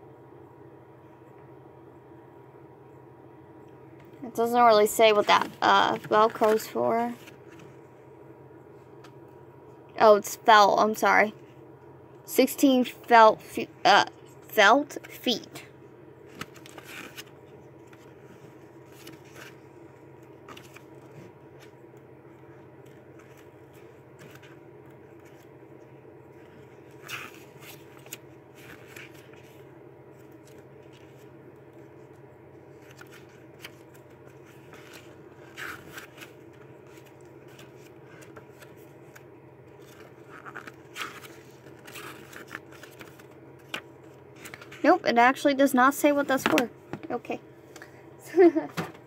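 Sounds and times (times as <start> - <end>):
paper pages rustling: 5.0 - 7.9, 16.2 - 25.5, 26.3 - 44.9.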